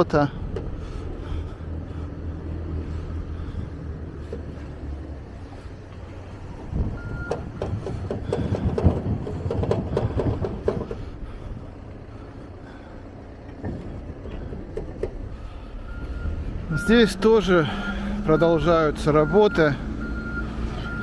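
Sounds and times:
backhoe engine running: 0:00.0 - 0:21.0
metal clanks and knocks: 0:07.2 - 0:11.5, 0:13.4 - 0:15.4.

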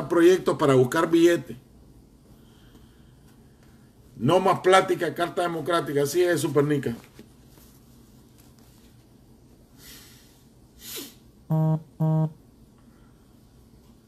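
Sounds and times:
breath: 0:02.3 - 0:03.9, 0:09.7 - 0:11.2, 0:12.8 - 0:13.4
low electronic buzzes: 0:11.5 - 0:12.4.

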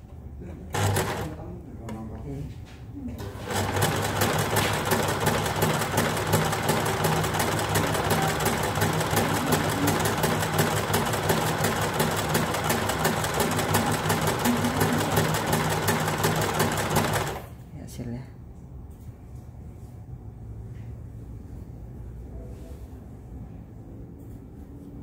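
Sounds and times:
electric sewing machine stitching: 0:00.7 - 0:01.4, 0:03.2 - 0:17.5.

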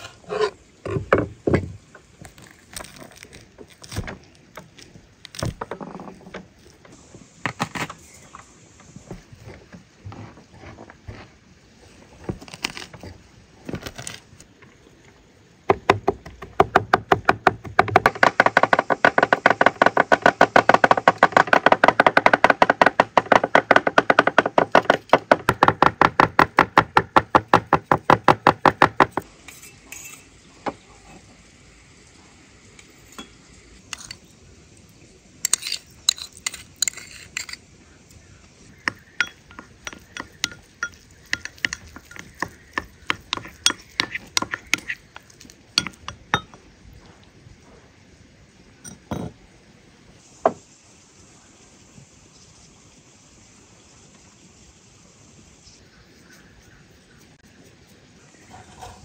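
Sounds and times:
wooden spoon stirring in ceramic bowl: 0:38.9 - 0:46.5.

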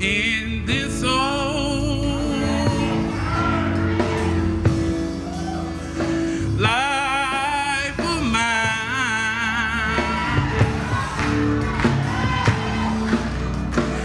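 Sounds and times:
solo voice singing with vibrato: 0:00.0 - 0:03.3
sustained keyboard accompaniment: 0:00.0 - 0:14.0.

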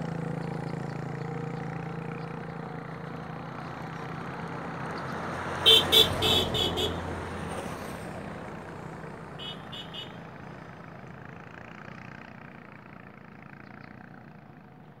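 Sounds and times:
road vehicle noise: 0:00.0 - 0:15.0
short horn beeps: 0:09.4 - 0:10.2.

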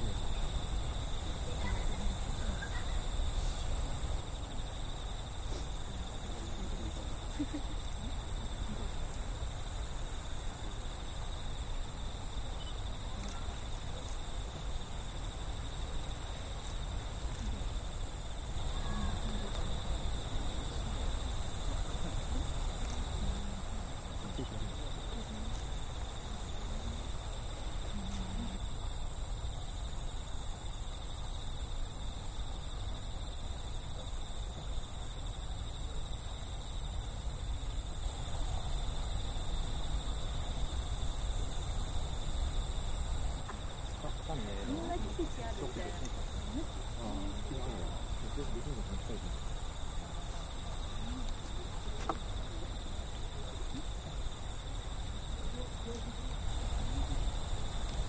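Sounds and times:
crickets trilling: 0:00.0 - 0:58.0.

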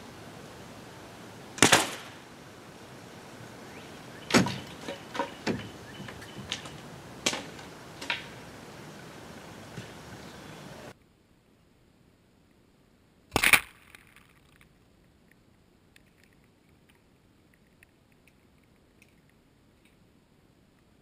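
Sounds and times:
water spray falling: 0:00.0 - 0:10.9.

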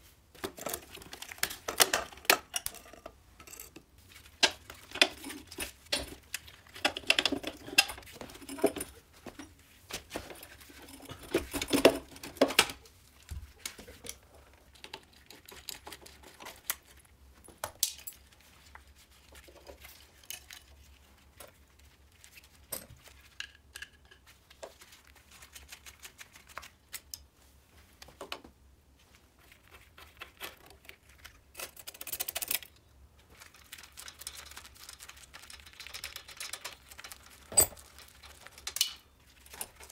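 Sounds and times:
metal parts and tools clinking: 0:00.5 - 0:03.8, 0:37.5 - 0:37.9.

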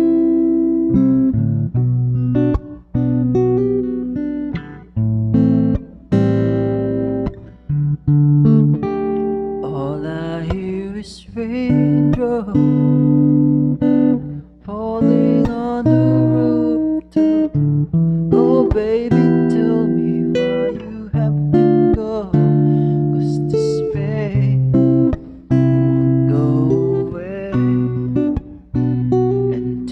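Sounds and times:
strummed acoustic guitar: 0:00.0 - 0:29.9
man singing: 0:09.6 - 0:13.3, 0:14.6 - 0:17.5, 0:18.3 - 0:28.4, 0:29.6 - 0:29.9.

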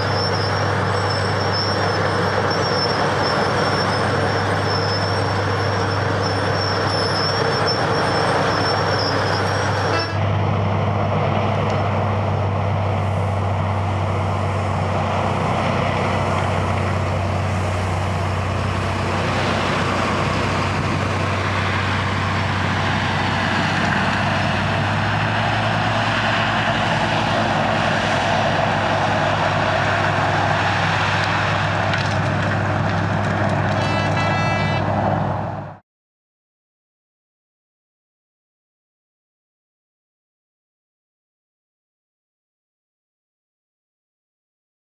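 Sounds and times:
diesel engines of trucks: 0:00.0 - 0:35.8
brief high tone: 0:33.8 - 0:34.9.

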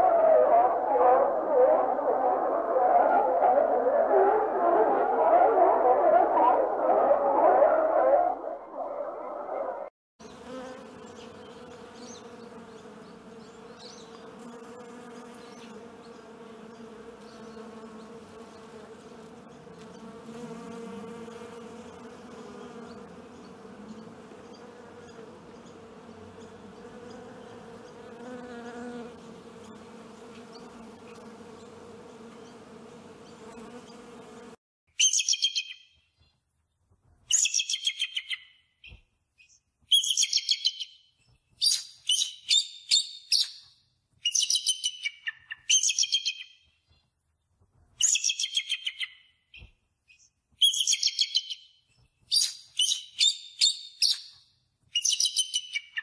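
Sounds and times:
wasps buzzing: 0:10.2 - 0:34.6.

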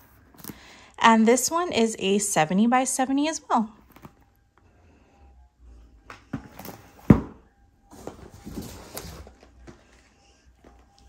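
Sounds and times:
boxes and packaging rustling: 0:00.0 - 0:00.8, 0:03.8 - 0:04.3, 0:06.2 - 0:11.0
cardboard boxes knocking: 0:06.3 - 0:07.4.

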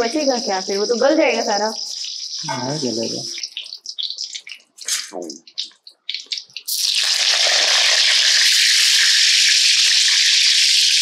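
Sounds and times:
tomatoes sizzling in hot oil: 0:00.0 - 0:11.0.

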